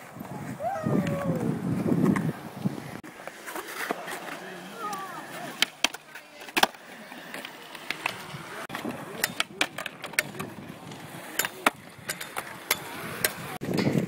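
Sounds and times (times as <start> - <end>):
skateboard clacking on concrete: 3.0 - 14.0.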